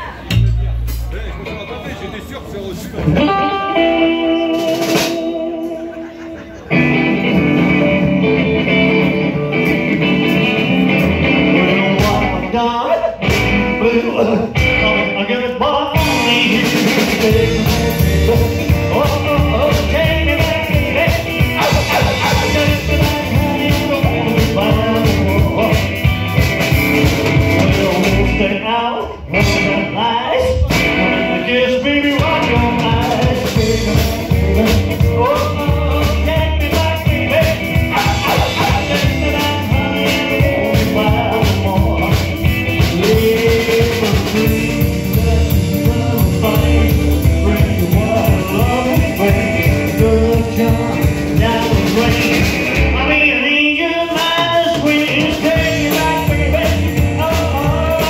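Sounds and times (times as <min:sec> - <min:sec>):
drum kit: 0:00.0 - 0:01.6, 0:03.0 - 0:15.2, 0:15.9 - 0:58.0
upright bass: 0:00.0 - 0:01.9, 0:02.9 - 0:58.0
electric guitar: 0:03.0 - 0:58.0.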